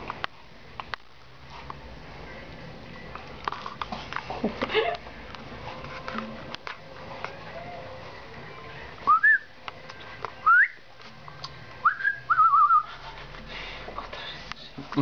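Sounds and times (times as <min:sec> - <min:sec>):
person whistling: 0:09.1 - 0:09.5, 0:10.4 - 0:10.8, 0:11.8 - 0:12.9.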